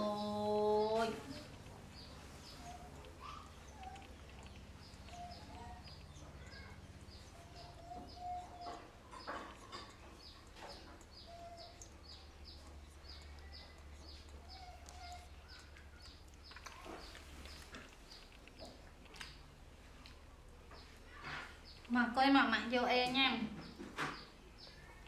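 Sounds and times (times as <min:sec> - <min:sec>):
faint bird chirping: 0:00.0 - 0:25.0
low steady hum: 0:00.0 - 0:25.0
soft squeaks: 0:00.9 - 0:18.8.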